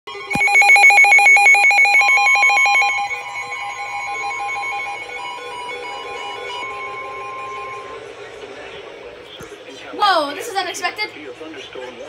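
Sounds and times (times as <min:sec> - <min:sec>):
alert radio beeping: 0:00.1 - 0:08.3
steady alarm tone: 0:00.1 - 0:08.6
alert radio click: 0:00.3 - 0:03.2.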